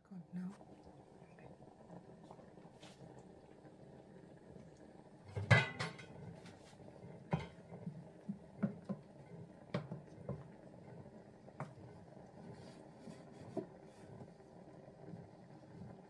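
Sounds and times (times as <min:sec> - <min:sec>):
wooden spoon knocking metal pot: 0:05.4 - 0:06.2.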